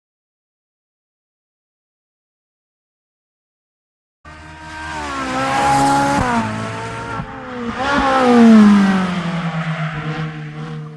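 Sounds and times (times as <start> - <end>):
car engine revving: 4.3 - 10.9.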